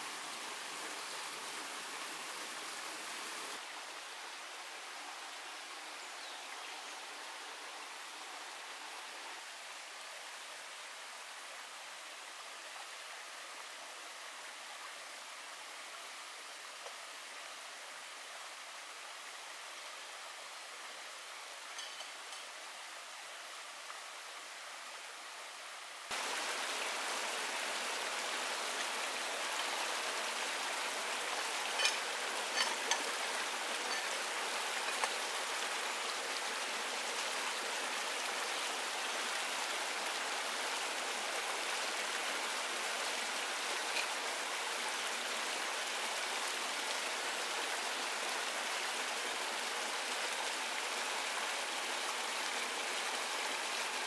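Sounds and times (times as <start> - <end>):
stream running over rocks: 0.0 - 54.0.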